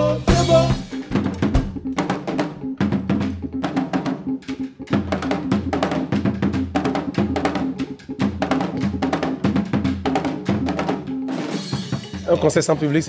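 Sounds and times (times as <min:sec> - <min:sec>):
low bass line: 0:00.0 - 0:02.0
drum kit playing busy strikes: 0:00.0 - 0:13.0.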